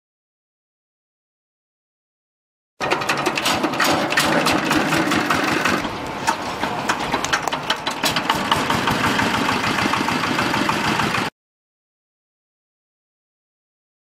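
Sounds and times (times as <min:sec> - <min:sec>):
diesel engine clattering: 0:02.8 - 0:11.3.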